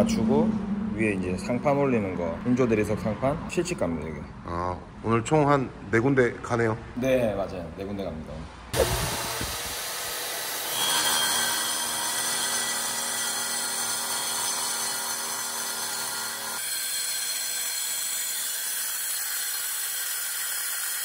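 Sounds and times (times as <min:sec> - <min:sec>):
track saw cutting stone: 0:08.8 - 0:21.0.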